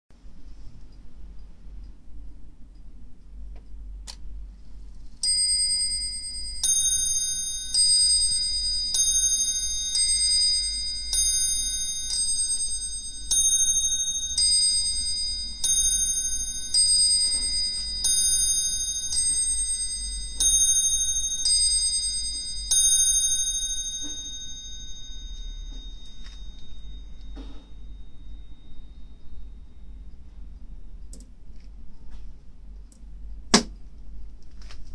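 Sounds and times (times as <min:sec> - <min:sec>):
clock striking on bell: 0:05.2 - 0:30.0.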